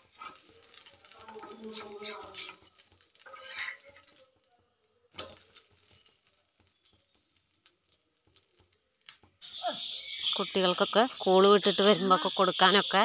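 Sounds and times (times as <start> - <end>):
metal spatula scraping pan: 0.0 - 4.2.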